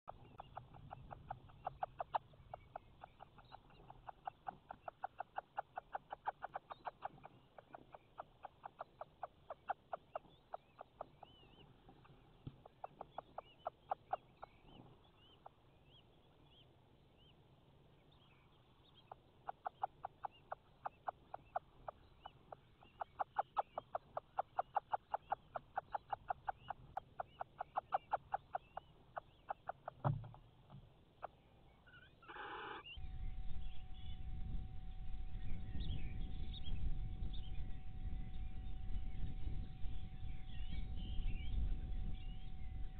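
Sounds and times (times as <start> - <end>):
owl clicking calls: 0.1 - 15.6, 18.9 - 33.0
faint high chirping: 0.1 - 17.4, 18.0 - 42.9.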